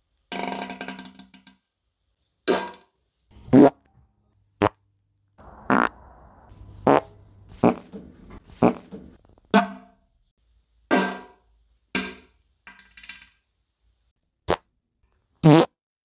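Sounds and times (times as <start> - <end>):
faint low hum: 3.3 - 8.5
wet farts: 3.5 - 3.8, 5.6 - 6.0, 6.8 - 7.9, 8.5 - 8.9, 15.4 - 15.8.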